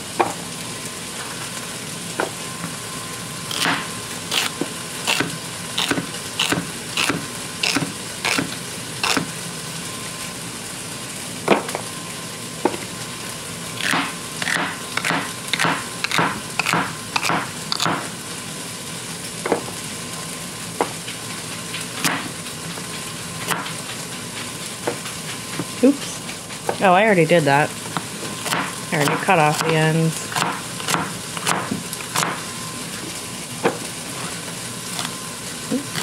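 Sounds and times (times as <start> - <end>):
chicken sizzling in a pan: 0.0 - 36.0
knife chopping celery on board: 3.5 - 9.3, 13.8 - 18.1, 28.0 - 32.4.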